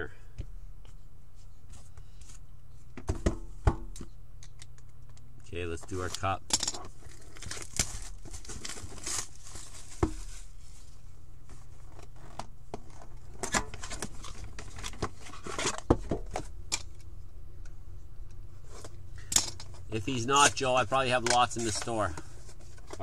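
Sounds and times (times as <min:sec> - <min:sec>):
cardboard rustling: 0:06.9 - 0:16.5, 0:19.7 - 0:23.0.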